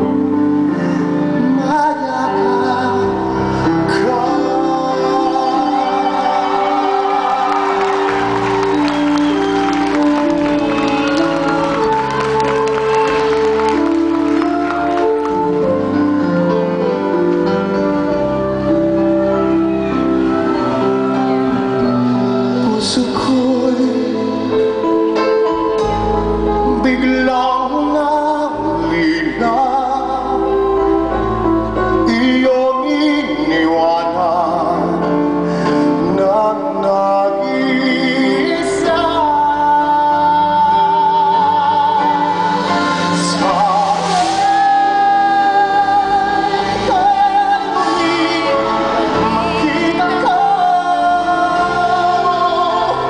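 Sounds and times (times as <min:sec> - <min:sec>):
man singing a ballad: 0:00.0 - 0:09.3, 0:22.2 - 0:53.0
rock band playing: 0:04.5 - 0:27.4.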